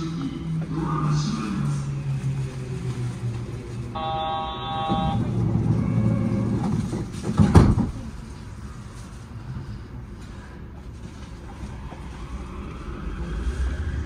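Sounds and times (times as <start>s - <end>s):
train low hum: 0.0s - 14.0s
electronic buzzer tone: 4.0s - 6.5s
train doors closing thump: 4.8s - 8.1s.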